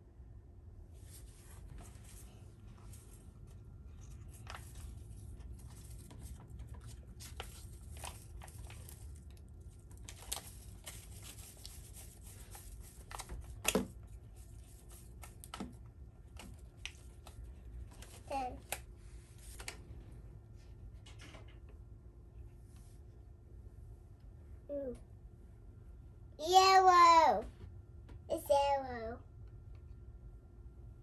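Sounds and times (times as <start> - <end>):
packet crinkling and rustling: 2.9 - 19.8.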